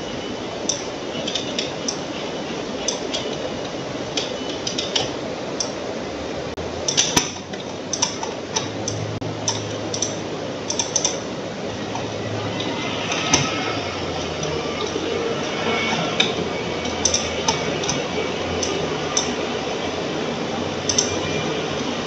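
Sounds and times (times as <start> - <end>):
mouse scroll wheel ticking: 0.7 - 5.8, 7.9 - 11.2, 11.9 - 19.4, 20.8 - 21.2.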